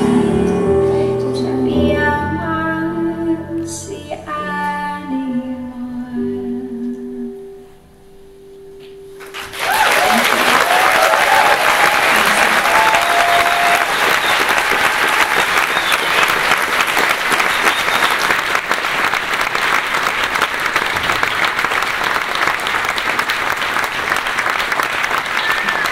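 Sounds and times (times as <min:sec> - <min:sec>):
audience applauding: 0:09.2 - 0:25.9
short whistle: 0:17.4 - 0:18.3.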